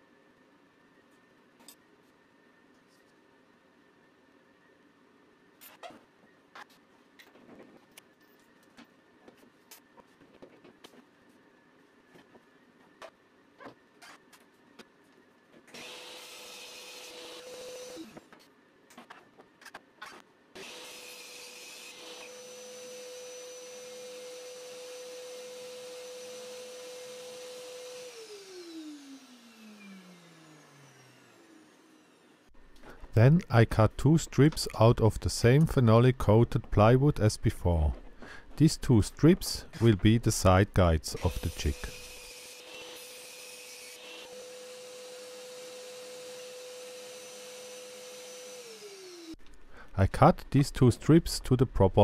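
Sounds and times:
table saw whining: 0:15.7 - 0:18.2, 0:20.6 - 0:32.5, 0:39.2 - 0:49.4.

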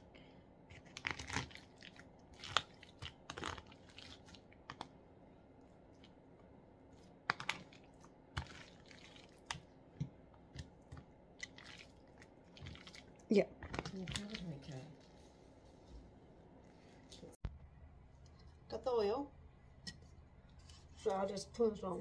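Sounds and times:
hands mixing raw chicken: 0:00.7 - 0:17.3.

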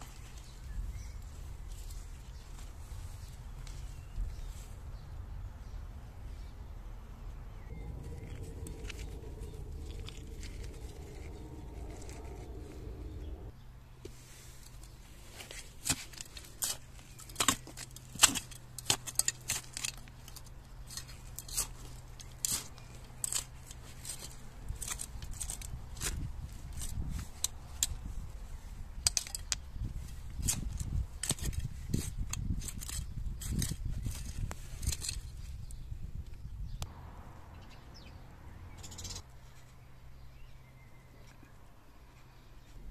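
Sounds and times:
hand fork scraping stony soil: 0:07.6 - 0:13.4, 0:14.1 - 0:35.8.

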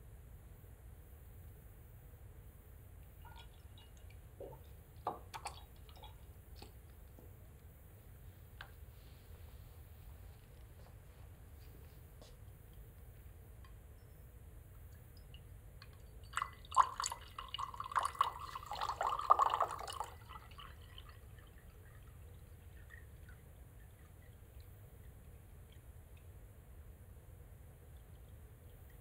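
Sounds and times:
water splashing into glass jar: 0:03.2 - 0:06.8, 0:15.2 - 0:21.2.

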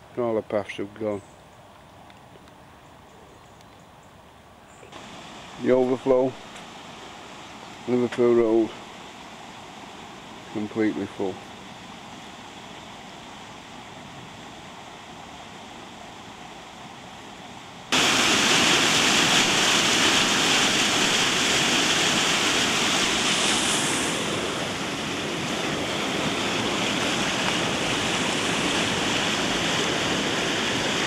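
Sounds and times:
faint water hiss: 0:00.0 - 0:31.0.

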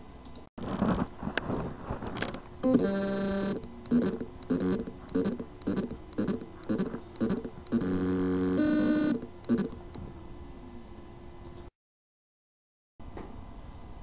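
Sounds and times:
hard drive motor whirring: 0:02.1 - 0:10.1
hard drive buzzing chirps: 0:02.6 - 0:10.0.

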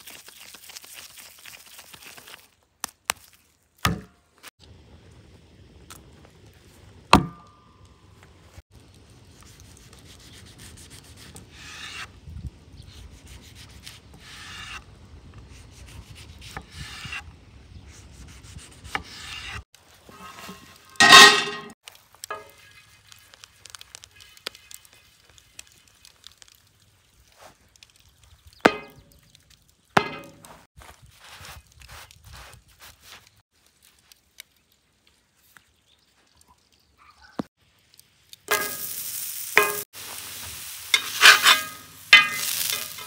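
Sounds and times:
butter sizzling on griddle: 0:38.4 - 0:43.0.

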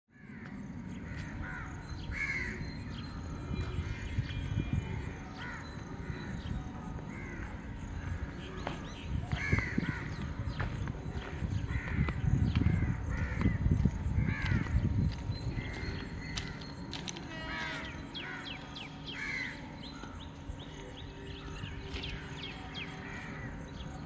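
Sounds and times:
crows cawing: 0:00.1 - 0:03.0, 0:03.8 - 0:20.8, 0:21.4 - 0:24.0
steady low rumble: 0:00.4 - 0:17.2.

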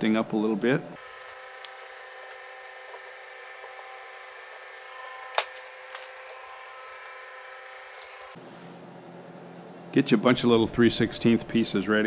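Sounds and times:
steady hum: 0:00.9 - 0:12.0.

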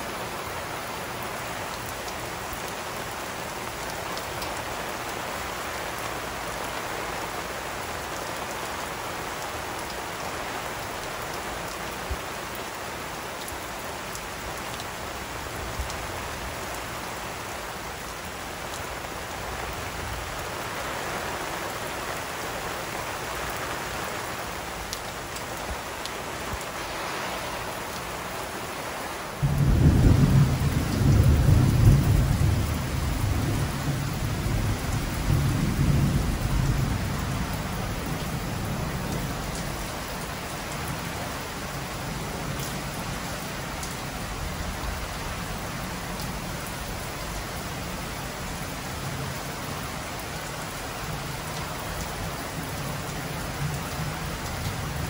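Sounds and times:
rain falling on lawn and patio: 0:00.0 - 0:55.0
thunder rumbling: 0:29.4 - 0:37.3.

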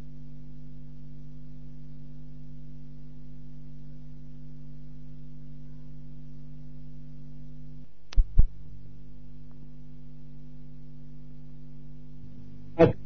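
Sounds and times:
low electrical hum: 0:00.0 - 0:13.0.

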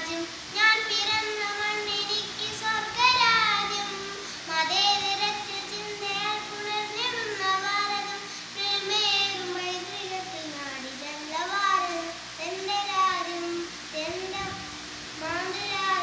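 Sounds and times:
girl singing: 0:00.0 - 0:16.0
breaths: 0:04.2 - 0:04.5, 0:08.2 - 0:08.6.

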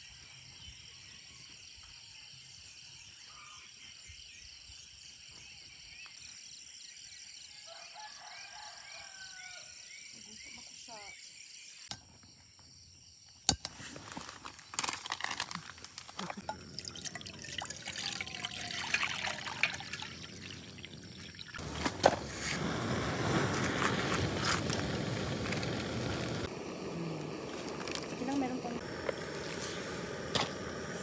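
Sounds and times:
water pouring into pot: 0:14.8 - 0:22.2
gas burner hissing: 0:21.6 - 0:31.0.

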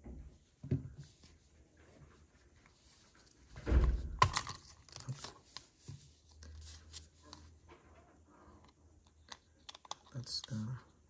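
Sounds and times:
plastic clicks: 0:09.0 - 0:10.6.

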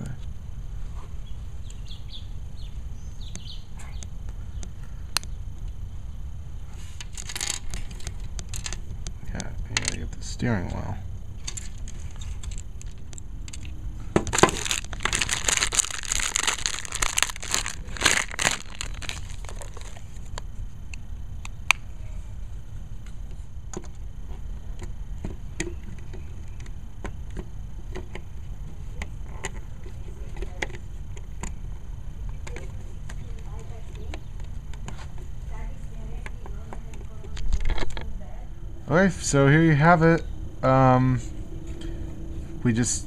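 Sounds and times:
crinkling handling noise: 0:06.7 - 0:10.0, 0:11.2 - 0:20.8.

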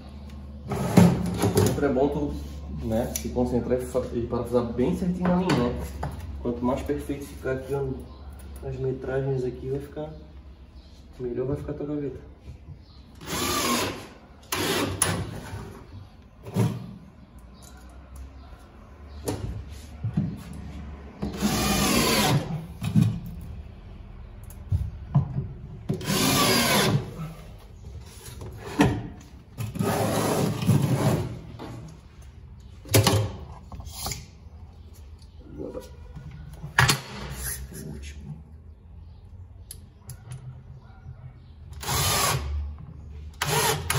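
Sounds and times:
drill-driver driving screws into metal: 0:13.2 - 0:15.3, 0:26.0 - 0:27.0, 0:43.4 - 0:43.9.

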